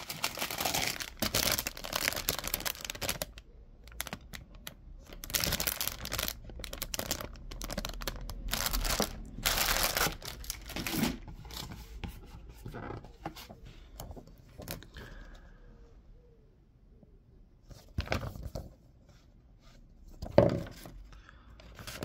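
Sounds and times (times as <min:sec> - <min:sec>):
plastic bags crinkling: 0:00.0 - 0:11.6.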